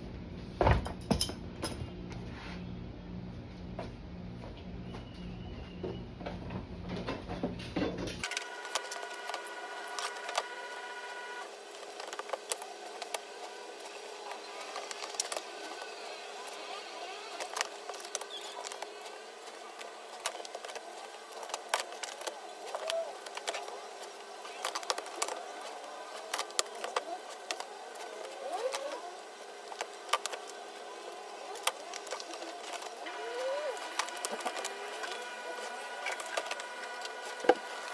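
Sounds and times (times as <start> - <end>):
faint steady hum: 0.0 - 37.9
paper pieces clicking and tapping: 8.2 - 10.6, 11.8 - 37.9.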